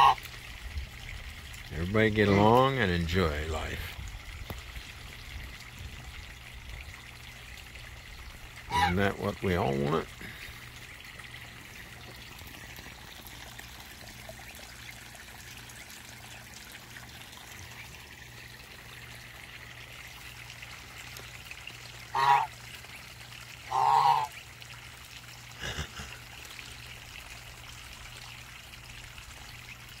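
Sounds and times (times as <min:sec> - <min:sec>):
waterfowl honking: 0:00.0 - 0:00.2, 0:08.7 - 0:09.1, 0:22.1 - 0:22.6, 0:23.7 - 0:24.4
trickle of running water: 0:00.0 - 0:30.0.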